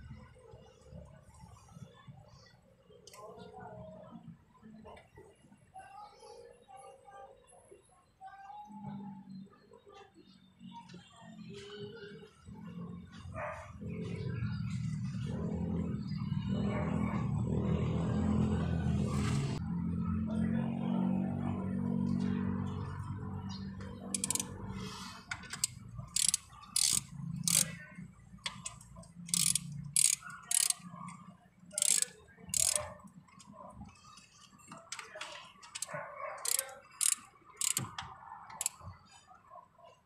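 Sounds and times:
ratchet wrench clicking: 24.2s - 24.5s, 25.4s - 27.8s, 28.5s - 30.8s, 31.7s - 32.9s, 35.6s - 38.0s.

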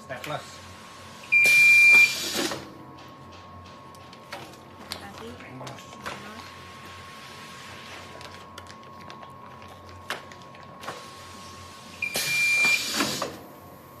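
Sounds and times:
metal detector alarm beep: 1.3s - 2.2s, 12.0s - 12.9s.

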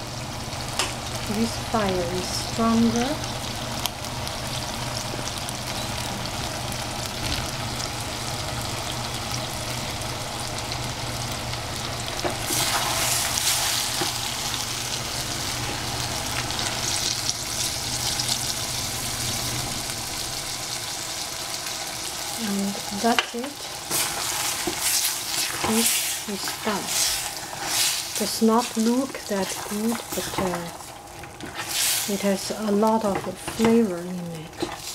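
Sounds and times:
vegetables sizzling in a pan: 0.0s - 34.9s
stirring food: 29.4s - 31.9s.

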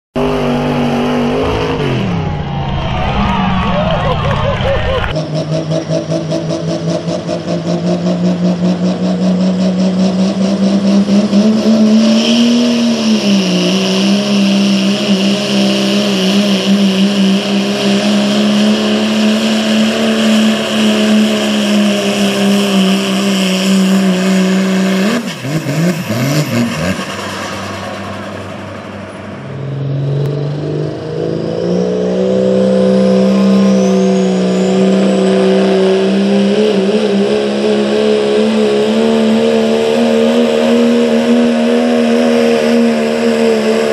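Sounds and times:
diesel truck engine at high revs: 0.1s - 43.9s
high whine: 0.2s - 5.4s, 11.0s - 43.9s.

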